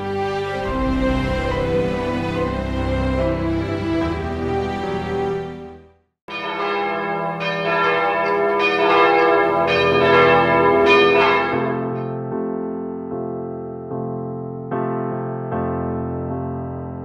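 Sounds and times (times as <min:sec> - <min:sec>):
church bells pealing: 0:00.0 - 0:04.4, 0:06.3 - 0:12.6
soft music: 0:00.0 - 0:06.0
piano: 0:00.0 - 0:17.0.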